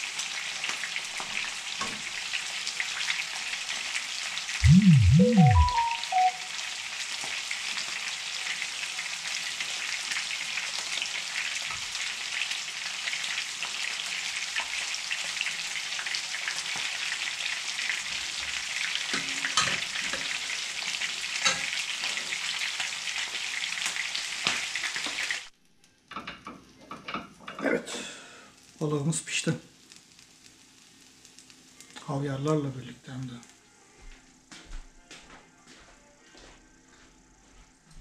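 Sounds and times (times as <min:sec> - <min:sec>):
fish sizzling in hot oil: 0:00.0 - 0:04.6, 0:05.8 - 0:25.6, 0:26.2 - 0:32.8.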